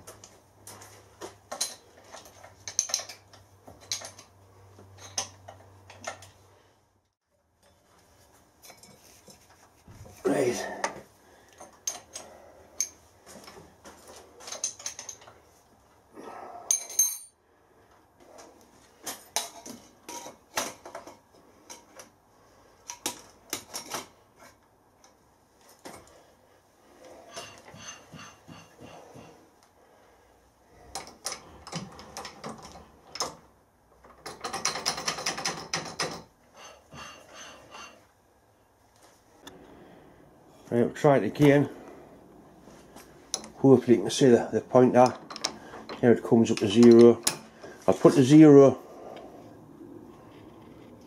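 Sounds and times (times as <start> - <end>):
metal tools clinking: 1.5 - 6.3, 8.6 - 9.5, 14.4 - 15.4, 16.7 - 17.4, 44.9 - 48.3
ringing metallic clinks: 16.7 - 17.4.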